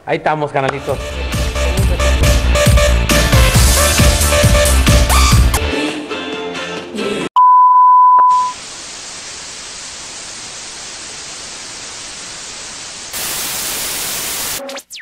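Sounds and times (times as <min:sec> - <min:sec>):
electronic music: 0:00.8 - 0:05.8, 0:14.5 - 0:15.0
high-pitched test tone beep: 0:07.4 - 0:08.6
television static hiss: 0:08.5 - 0:14.6.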